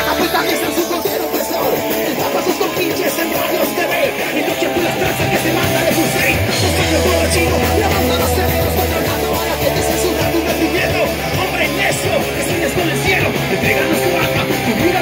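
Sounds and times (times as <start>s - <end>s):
guitars: 0.0s - 15.0s
live rock band playing: 0.0s - 15.0s.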